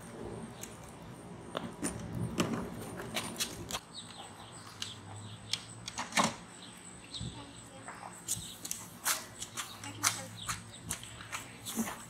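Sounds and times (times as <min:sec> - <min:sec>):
faint bird chirps: 0:06.5 - 0:08.7.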